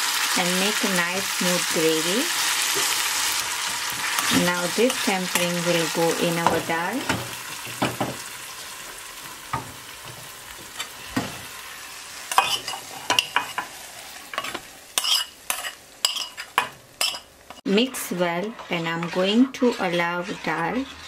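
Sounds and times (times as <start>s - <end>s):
spices sizzling in oil: 0.0s - 21.0s
metal spoon scraping pans: 12.3s - 21.0s.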